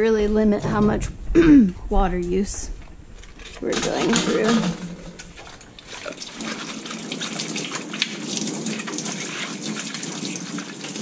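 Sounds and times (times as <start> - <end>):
tap water splashing into sink: 4.0 - 11.0.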